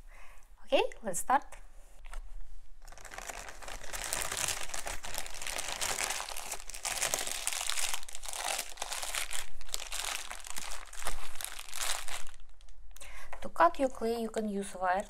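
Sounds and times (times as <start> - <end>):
plastic bag crinkling: 2.8 - 12.8.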